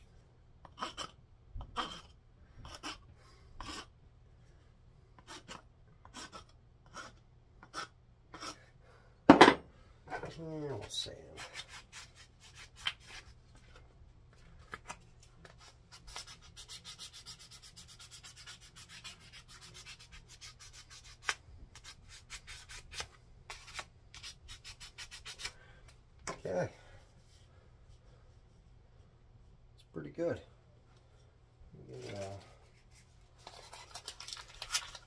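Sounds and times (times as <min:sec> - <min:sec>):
sandpaper rubbing wood: 0:16.0 - 0:25.6.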